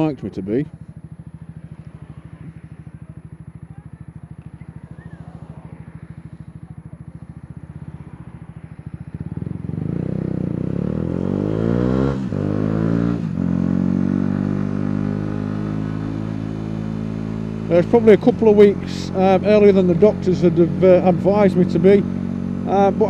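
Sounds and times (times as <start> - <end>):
motorcycle engine idling and revving: 0.0 - 23.0.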